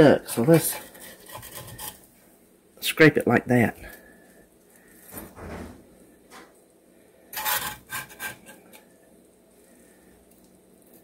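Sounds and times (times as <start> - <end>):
metal spatula scraping baking sheet: 0.3 - 2.1, 7.3 - 8.9.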